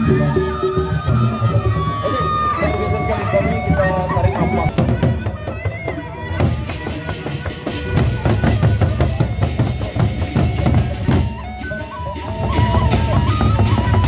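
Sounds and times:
barrel drums beaten fast: 6.4 - 14.0.

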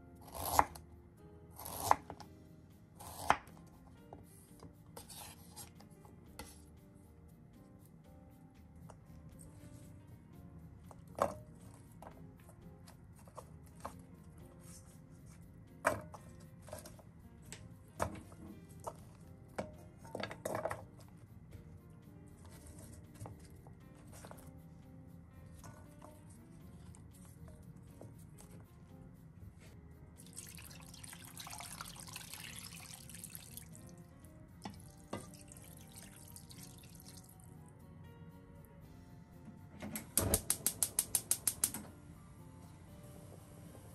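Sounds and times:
quiet background music: 0.0 - 43.9
water pouring into a pan: 30.2 - 33.8, 34.8 - 37.3.

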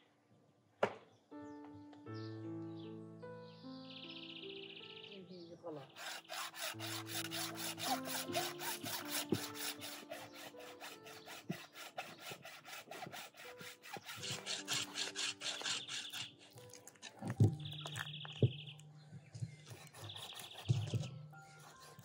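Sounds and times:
hacksaw cutting bone: 5.9 - 18.1, 19.6 - 22.0.

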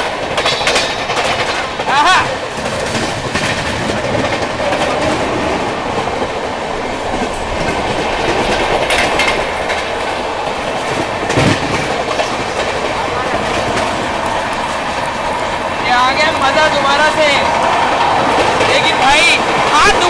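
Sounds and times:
sharp clacks: 0.0 - 1.9
clickety-clack over rail joints: 0.0 - 20.0
train wheels rumbling on rails: 0.0 - 20.0.

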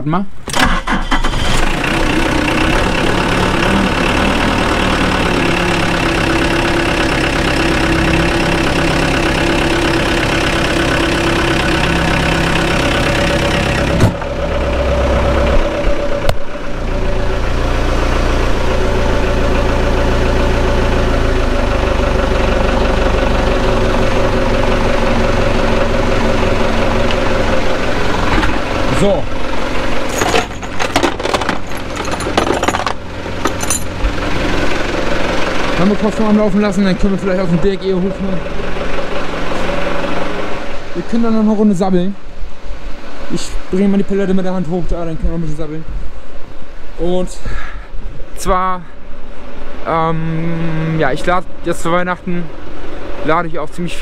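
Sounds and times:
diesel forklift engine idling: 0.5 - 41.0.

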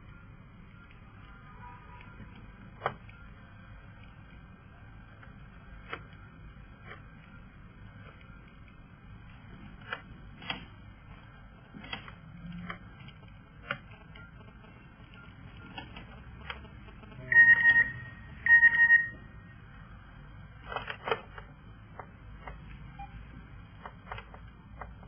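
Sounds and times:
loud electronic beeps: 17.1 - 19.4.

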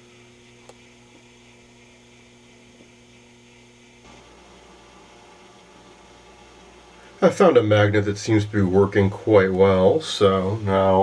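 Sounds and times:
electrical mains hum: 0.0 - 11.0
faint hiss: 4.0 - 11.0.

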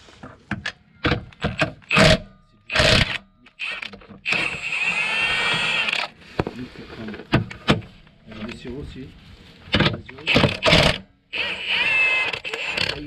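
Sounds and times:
impact wrench bursts: 1.8 - 6.1, 10.3 - 13.0.

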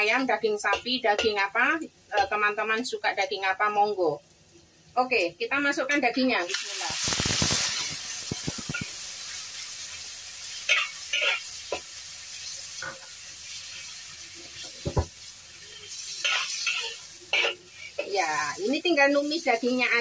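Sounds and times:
meat sizzling in hot oil: 0.0 - 20.0
metal spatula scraping a wok: 6.7 - 9.4, 10.5 - 11.8, 15.6 - 18.1.

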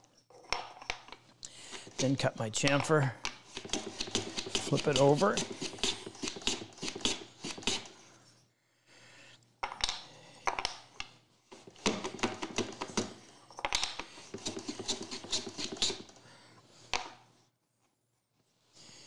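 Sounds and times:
tool scraping wood: 1.6 - 8.0, 11.6 - 16.2.

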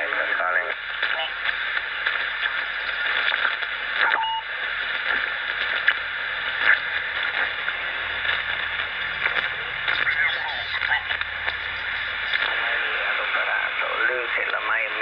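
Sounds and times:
radio static with crackles: 0.0 - 15.0
short radio tone: 6.6 - 13.9.

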